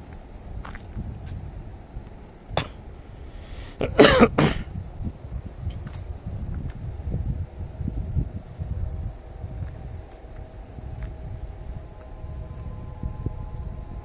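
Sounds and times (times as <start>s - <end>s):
footsteps on paved path: 0.0s - 2.8s, 5.6s - 7.6s, 9.3s - 12.3s
short coughs: 2.6s - 2.8s, 3.7s - 4.7s.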